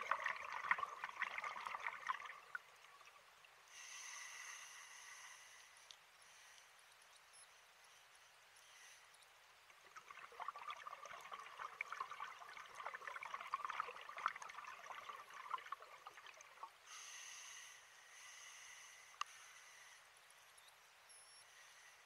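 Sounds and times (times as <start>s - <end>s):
regulator breath hiss: 3.7s - 6.7s, 16.8s - 20.1s.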